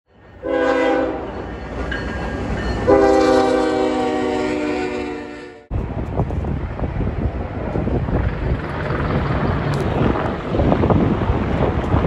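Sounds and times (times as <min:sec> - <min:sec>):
train rumbling: 0:00.1 - 0:12.0
locomotive air horn blasts: 0:00.4 - 0:01.3, 0:02.8 - 0:05.7.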